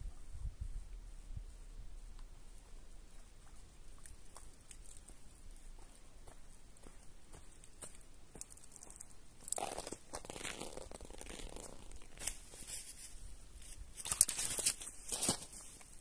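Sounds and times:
footsteps on sand: 2.6s - 8.6s
fishing tackle rustling: 9.5s - 16.0s.

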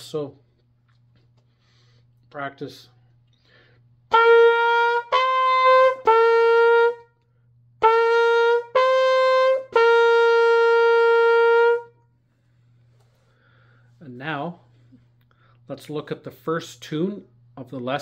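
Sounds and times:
trumpet playing held notes: 4.1s - 7.1s, 7.8s - 12.0s.

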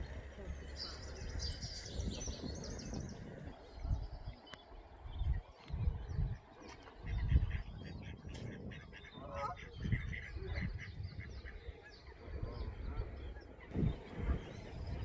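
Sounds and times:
birds chirping and twittering: 0.0s - 15.0s.

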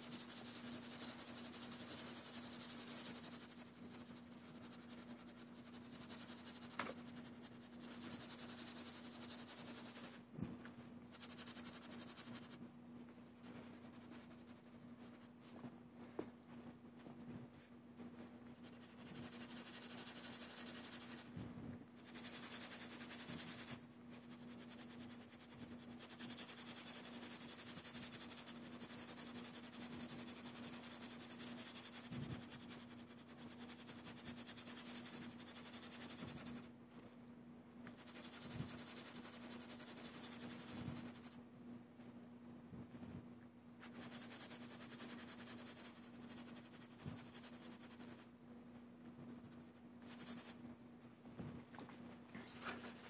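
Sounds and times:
pencil shading on paper: 0.0s - 10.2s, 11.1s - 12.6s, 18.6s - 21.3s, 22.0s - 36.7s, 37.9s - 41.4s, 43.8s - 48.2s, 49.3s - 50.6s, 52.6s - 53.0s
faint steady hum: 0.0s - 53.0s.

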